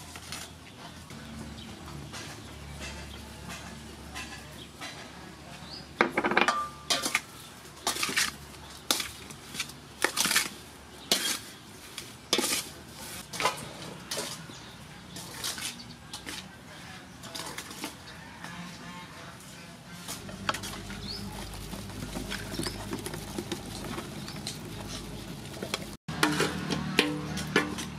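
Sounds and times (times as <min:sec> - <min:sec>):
wooden spoon scraping metal bowl: 0:20.0 - 0:27.9.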